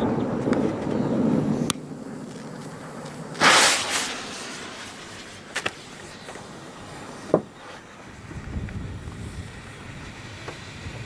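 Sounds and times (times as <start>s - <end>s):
small quick cracks: 1.7s - 6.4s
firecracker bang: 2.8s - 7.6s.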